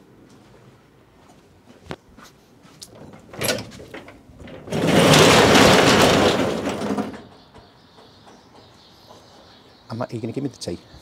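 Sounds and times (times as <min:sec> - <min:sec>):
garage door rattling open: 0:02.9 - 0:08.7.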